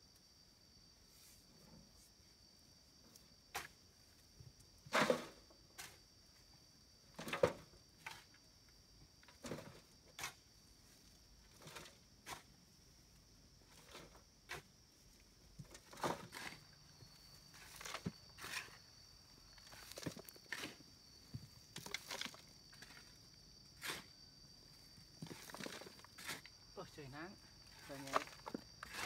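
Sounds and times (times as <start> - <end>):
insect drone: 0.0 - 29.0
shovel scraping soil: 11.6 - 12.6, 15.8 - 16.7, 17.5 - 18.9, 19.6 - 20.8, 23.8 - 24.2, 25.2 - 26.5, 27.7 - 29.0.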